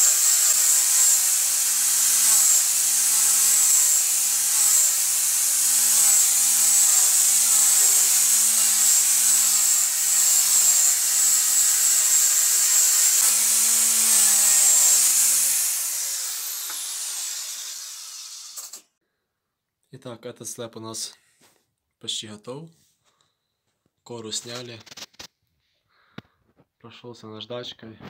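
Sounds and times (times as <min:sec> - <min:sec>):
electric sander running: 0:00.0 - 0:18.8.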